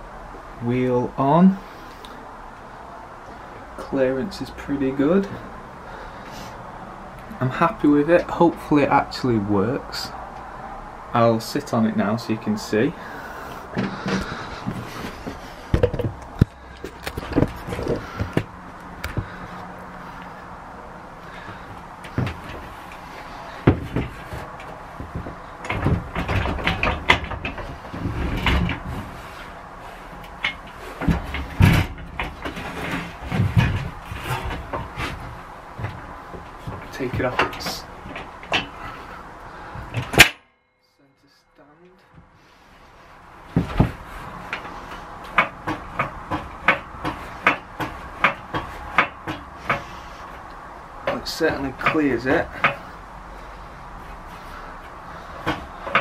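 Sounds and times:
motorcycle frame knocks and clunks: 0:13.7 - 0:19.7, 0:21.3 - 0:40.4, 0:43.4 - 0:50.2, 0:51.0 - 0:53.0, 0:54.4 - 0:56.0.

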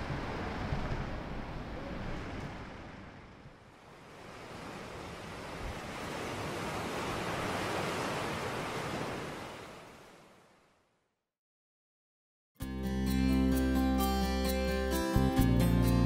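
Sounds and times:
surf washing on shore: 0:00.0 - 0:10.6.

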